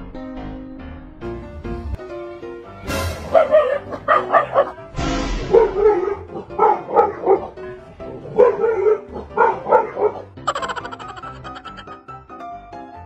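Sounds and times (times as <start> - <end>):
background music: 0.0 - 13.0
dog barking sharply: 3.3 - 4.8.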